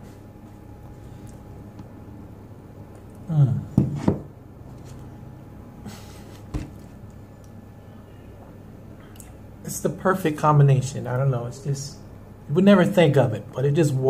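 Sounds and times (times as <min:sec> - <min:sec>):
man making muffled voice sound: 0:03.2 - 0:03.8.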